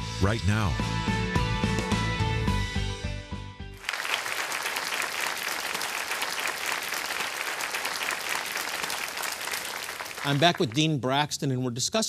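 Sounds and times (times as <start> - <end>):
background music: 0.0 - 3.9
studio audience applauding: 3.8 - 11.0.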